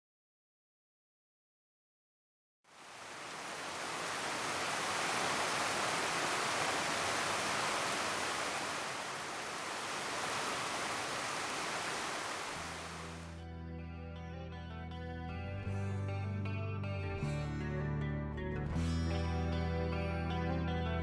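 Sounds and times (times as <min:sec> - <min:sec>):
stream rushing over rocks: 0:02.8 - 0:13.3.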